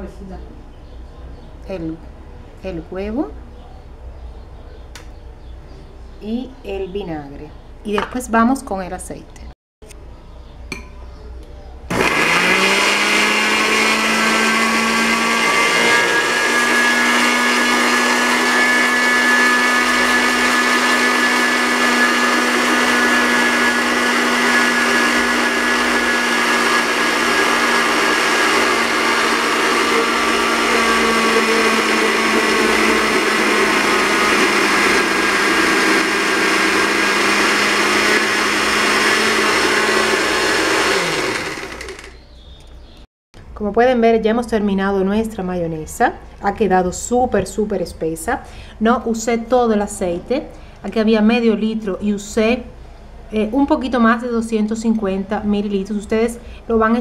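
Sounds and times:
blender motor running: 11.9 - 42.2.

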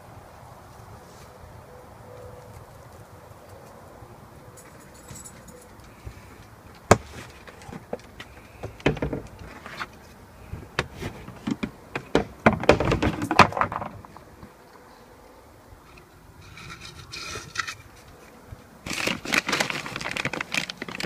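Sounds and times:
plastic bin lids clattering: 10.7 - 14.1.

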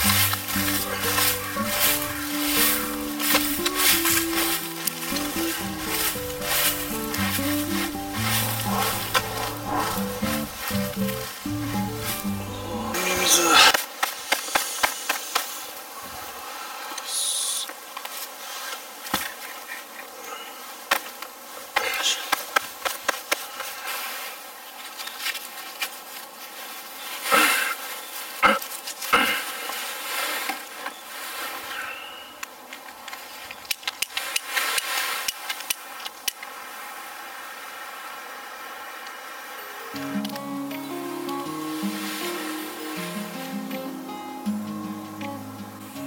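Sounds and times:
fire crackling: 0.0 - 16.4, 39.9 - 46.0
wood fire hissing: 0.0 - 40.4, 41.3 - 45.0.

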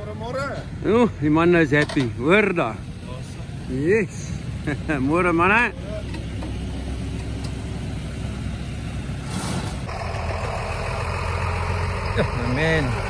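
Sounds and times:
short hiss: 9.3 - 9.8
engine idling: 9.8 - 13.0.

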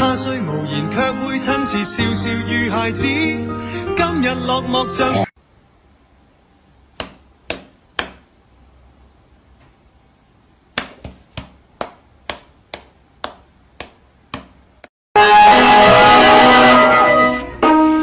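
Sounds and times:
cat paw slapping palm: 7.0 - 8.2, 10.7 - 14.6.

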